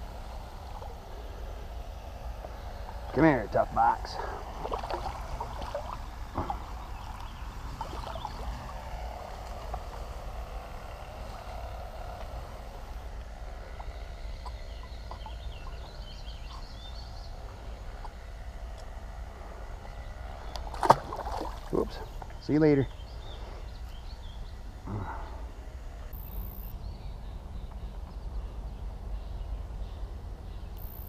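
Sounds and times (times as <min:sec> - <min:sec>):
river flowing: 0:02.4 - 0:09.9, 0:20.7 - 0:22.0.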